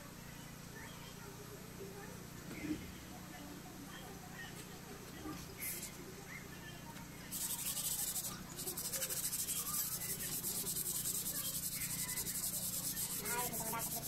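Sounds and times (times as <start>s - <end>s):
rapid scrubbing on a surface: 7.3s - 14.0s.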